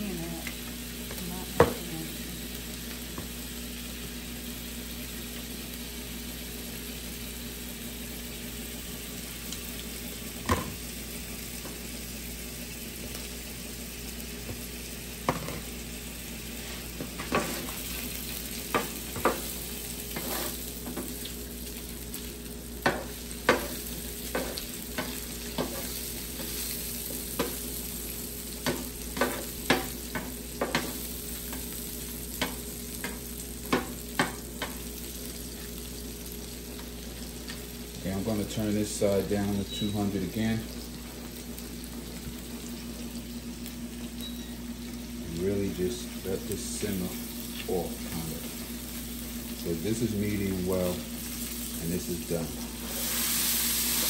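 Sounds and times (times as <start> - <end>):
meat sizzling on griddle: 0.0 - 54.0
utensil tapping on griddle: 22.8 - 26.6, 28.6 - 31.0, 32.4 - 34.8.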